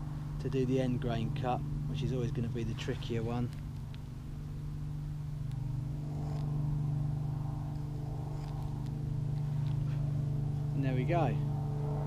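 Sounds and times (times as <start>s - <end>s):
light aircraft engine droning: 0.0s - 12.0s
knife cutting wood: 7.7s - 10.0s.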